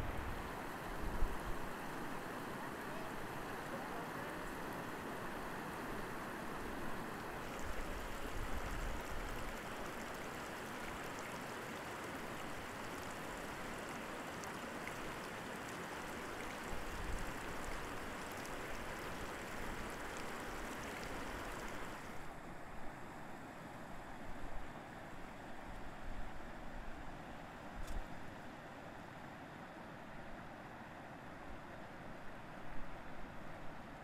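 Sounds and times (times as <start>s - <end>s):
stream rushing over stones: 0.0s - 22.4s.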